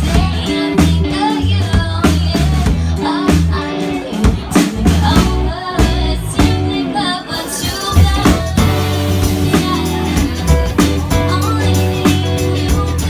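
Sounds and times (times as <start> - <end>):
live band playing: 0.0 - 13.0
woman singing: 0.0 - 13.0
drum hits: 7.9 - 8.8.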